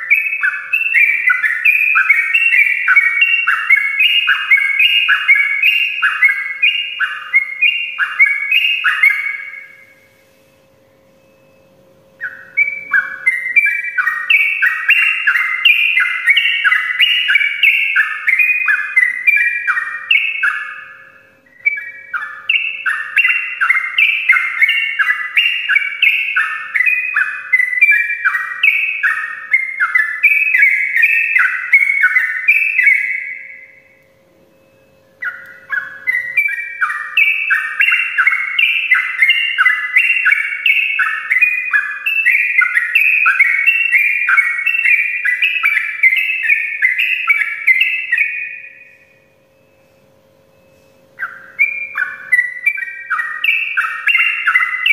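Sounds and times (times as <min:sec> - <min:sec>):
bulbul singing chattering song: 0:00.0 - 0:54.9.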